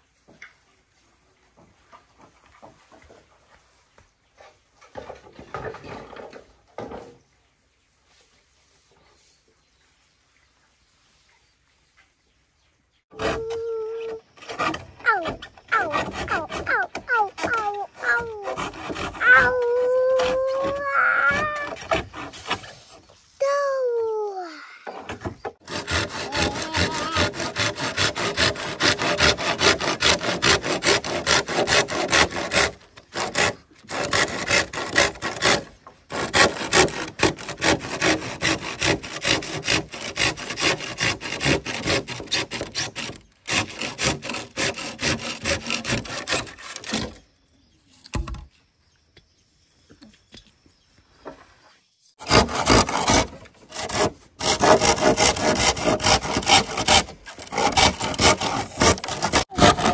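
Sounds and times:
hand saw cutting bamboo: 13.1 - 23.0, 25.6 - 47.2, 52.2 - 59.9.

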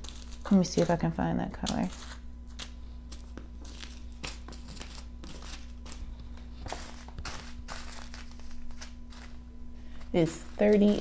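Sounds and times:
faint steady hum: 0.0 - 11.0
plastic bags crinkling: 3.6 - 9.4, 10.0 - 11.0.

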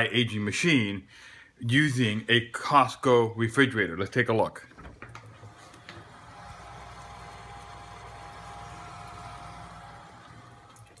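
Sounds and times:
fridge humming: 4.8 - 11.0
thin whine: 5.4 - 11.0.

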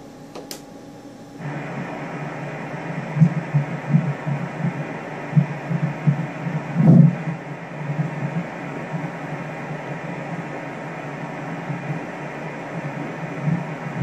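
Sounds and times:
ultrasound machine click: 0.3 - 0.7
fetal heartbeat whooshing pulses: 1.4 - 14.0.

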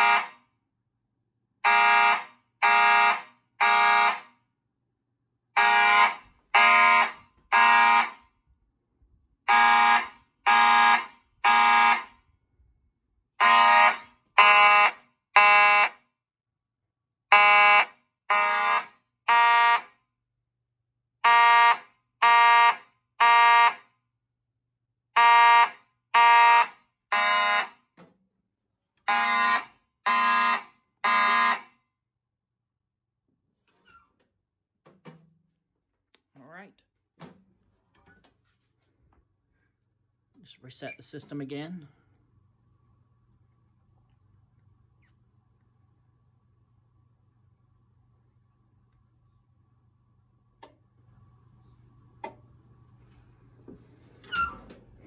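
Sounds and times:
fire alarm horn blasts: 0.0 - 0.6, 1.6 - 4.6, 5.5 - 8.6, 9.4 - 12.6, 13.3 - 16.2, 17.2 - 20.2, 21.2 - 24.1, 25.1 - 28.0, 29.0 - 32.0.

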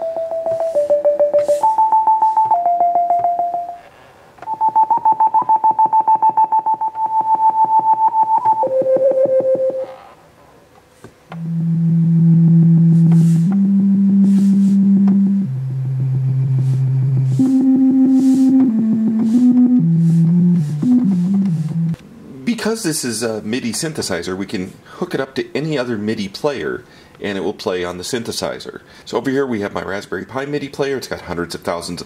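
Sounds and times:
synthesizer notes pulsing: 0.0 - 3.8, 11.4 - 22.6.

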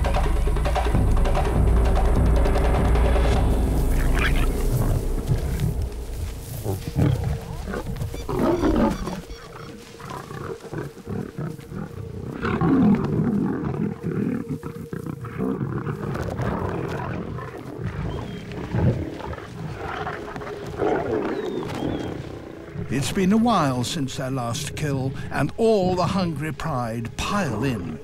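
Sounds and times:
lions growling: 3.2 - 5.9, 6.5 - 23.1.

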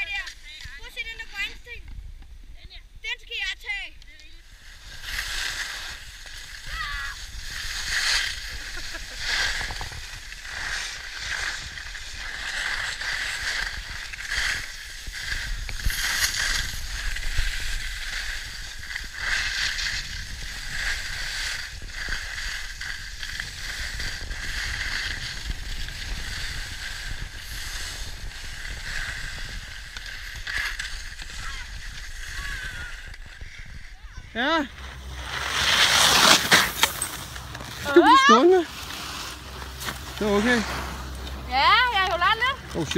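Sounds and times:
skis scraping over snow: 0.0 - 1.8, 3.3 - 42.9
low wind rumble on microphone: 4.4 - 35.6.

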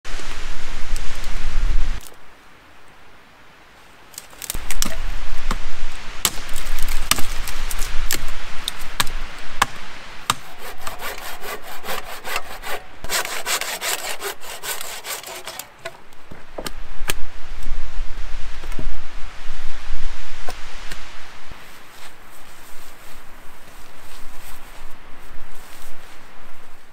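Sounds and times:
dry wood snapping: 4.1 - 5.6, 6.2 - 11.2, 14.7 - 16.0
hand saw rasping through wood: 10.3 - 15.7.

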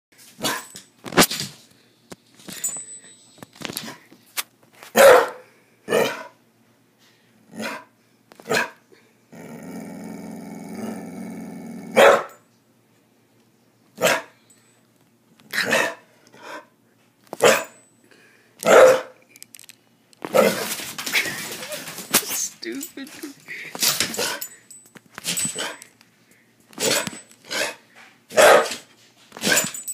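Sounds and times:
dog barking: 5.0 - 6.3, 8.5 - 8.8, 12.0 - 12.4, 14.0 - 14.3, 17.4 - 17.8, 18.6 - 19.2, 27.6 - 28.8
dog growling low: 9.3 - 12.0.

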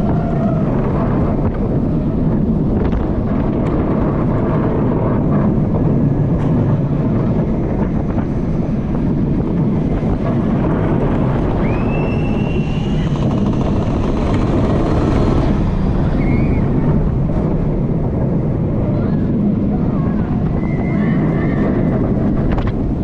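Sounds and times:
roller coaster running on track: 0.0 - 23.0
wind on microphone: 0.0 - 23.0
faint clicks and rattles: 12.9 - 15.6.

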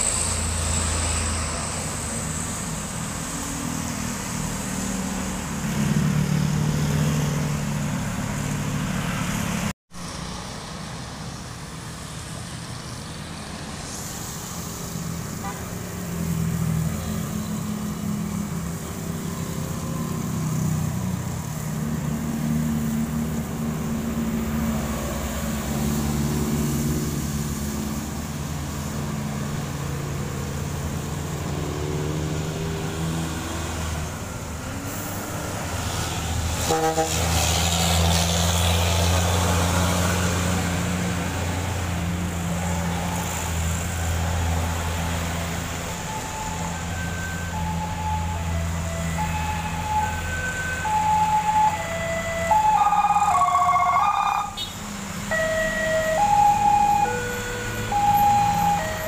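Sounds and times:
truck engines running: 0.0 - 59.0
tyre hiss on wet road: 10.0 - 16.7, 34.6 - 46.1
horn-like blast: 36.6 - 37.3.

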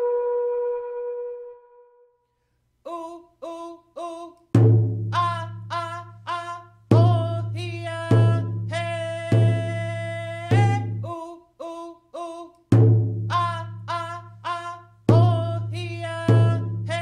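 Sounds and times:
woman chanting: 5.2 - 12.5, 13.3 - 17.0.

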